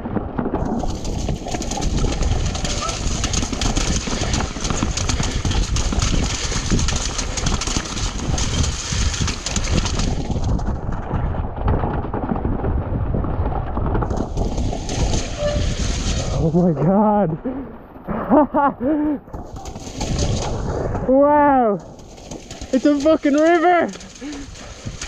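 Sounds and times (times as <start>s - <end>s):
bike rattling over stones: 0.0s - 25.0s
wind rumble on microphone: 0.0s - 25.0s
tyres splashing through water: 21.8s - 25.0s.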